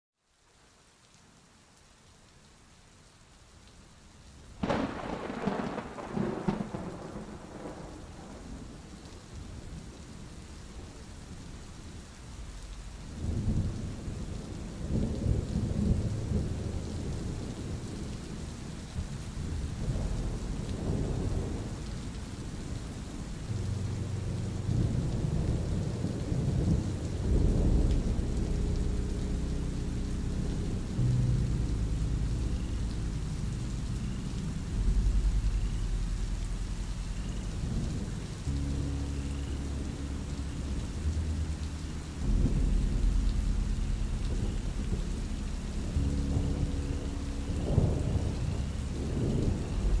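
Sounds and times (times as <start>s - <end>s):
steady rain: 0.2s - 50.0s
thunder crack: 4.6s - 8.9s, 19.0s - 50.0s
low thunder rumbles: 4.6s - 50.0s.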